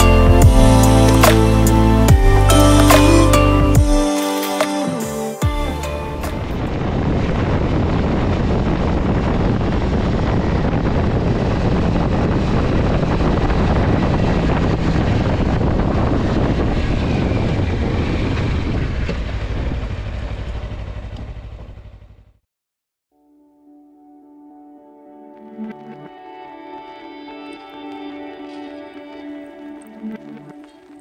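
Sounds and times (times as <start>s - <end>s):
motorcycle engine running: 0.0s - 3.0s, 5.4s - 22.4s
wind and road noise: 5.7s - 22.3s.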